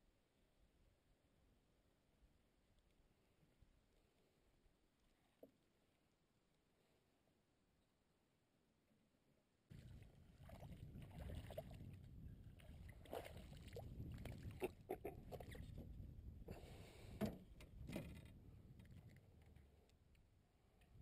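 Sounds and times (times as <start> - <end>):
faint low rumble: 9.7 - 21.0.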